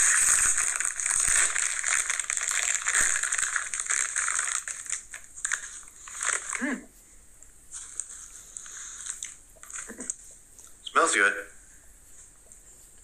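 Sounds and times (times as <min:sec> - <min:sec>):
plastic snack bag crackling: 0:00.0 - 0:06.7, 0:07.8 - 0:10.2.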